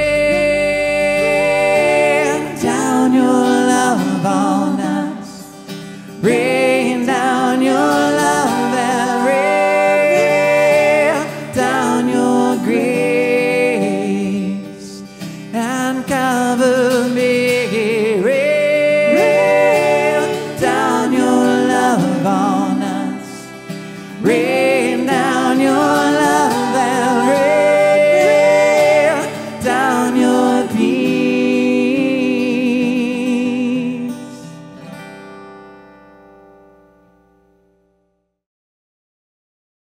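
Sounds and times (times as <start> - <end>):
man singing: 0.0 - 5.5, 6.2 - 34.5
bass guitar: 0.0 - 14.6
acoustic guitar: 0.0 - 38.4.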